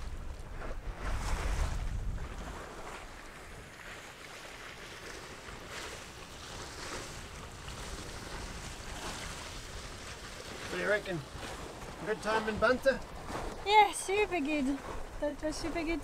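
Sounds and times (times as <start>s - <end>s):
water splashing along hull: 0.0s - 16.0s
wind buffeting microphone: 0.0s - 16.0s.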